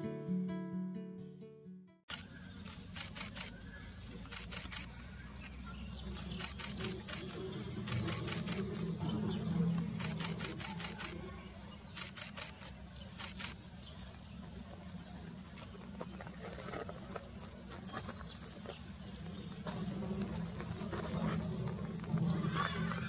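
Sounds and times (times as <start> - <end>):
camera shutter clicking: 2.1 - 3.6, 4.3 - 4.9, 6.2 - 8.9, 10.0 - 11.2, 11.9 - 13.6.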